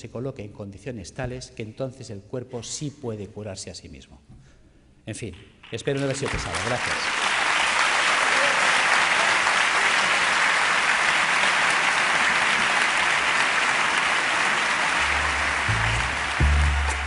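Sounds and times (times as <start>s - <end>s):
audience applauding: 5.8s - 17.0s
low music notes: 15.0s - 17.0s.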